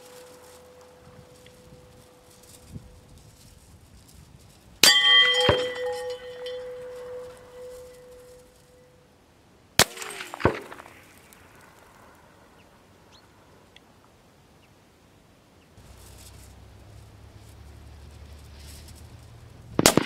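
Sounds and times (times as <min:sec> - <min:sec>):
steel gong ringing: 0:04.8 - 0:09.0
rifle shot crack: 0:09.8 - 0:12.0, 0:19.8 - 0:20.0.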